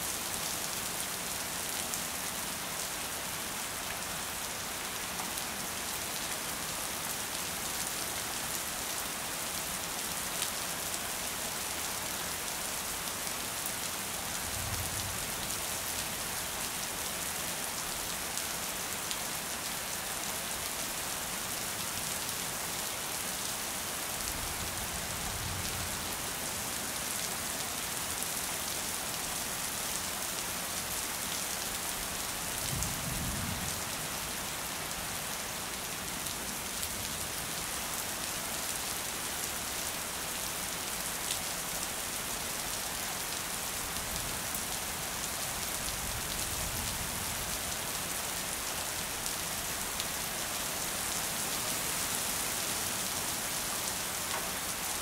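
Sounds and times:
rain on a hard surface: 0.0 - 55.0.

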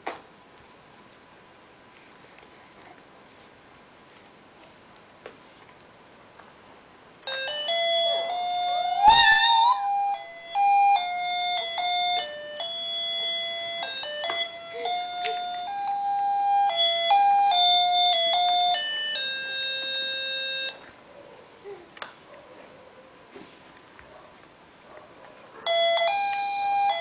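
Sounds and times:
electronic toy beeping tune: 7.3 - 20.8.

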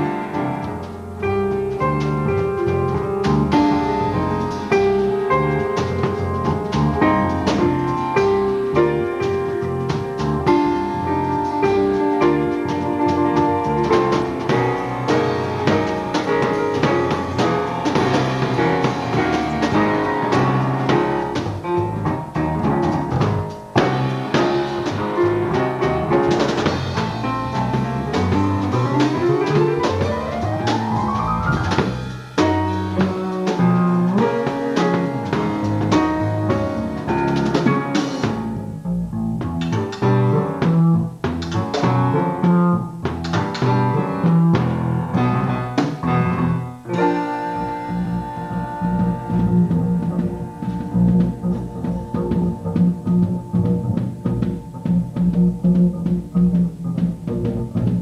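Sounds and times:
acoustic piano: 0.0 - 58.0
drum kit: 0.0 - 58.0
electric bass: 0.0 - 58.0.

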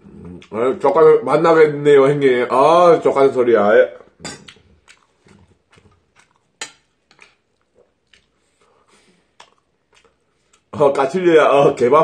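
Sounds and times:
faint chewing: 3.9 - 10.8.

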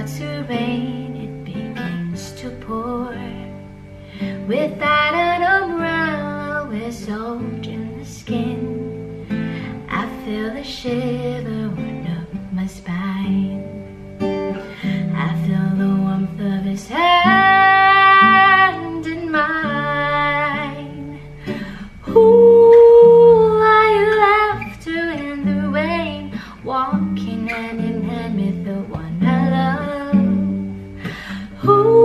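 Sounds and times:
strummed acoustic guitar: 0.0 - 32.0
woman singing a slow ballad: 0.0 - 32.0.

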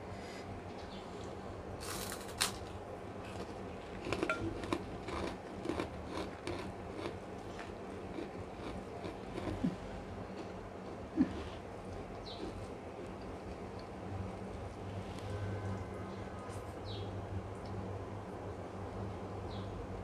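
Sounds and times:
crunchy chewing: 0.8 - 16.6
cracker crunching bite: 1.8 - 10.5.

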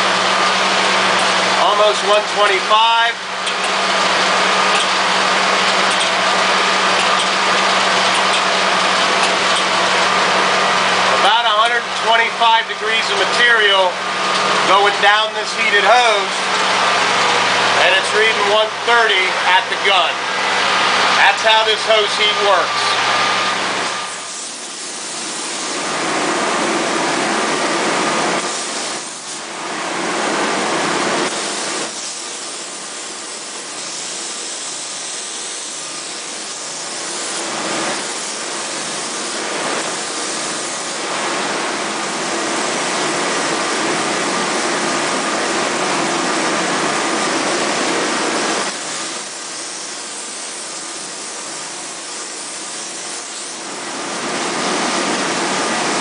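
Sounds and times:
spray foam gun hissing: 22.9 - 25.9, 28.4 - 29.5, 31.3 - 41.0, 48.4 - 53.8.

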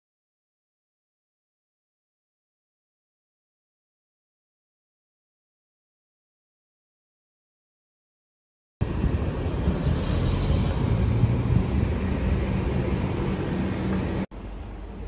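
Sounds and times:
road traffic rumble: 8.8 - 15.0.

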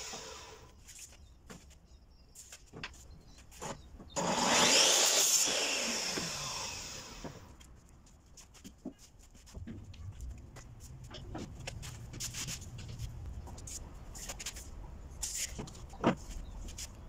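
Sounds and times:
miter saw cutting wood: 0.0 - 0.7, 4.2 - 7.4
saw motor winding down: 4.2 - 7.4.

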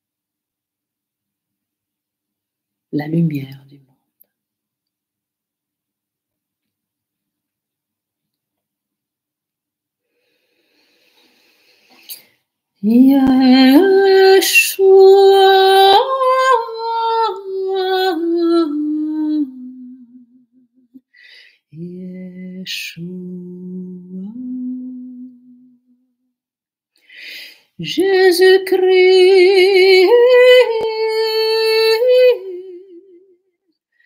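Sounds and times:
woman singing long notes: 12.8 - 20.4, 21.7 - 25.9, 27.8 - 33.3.

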